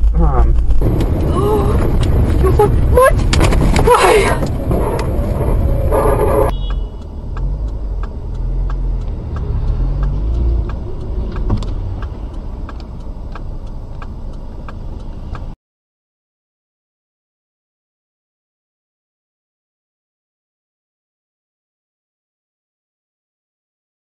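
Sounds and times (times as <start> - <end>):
engine and road rumble: 0.0 - 15.6
tyre and engine noise: 0.0 - 15.6
steady ticking: 0.8 - 15.6.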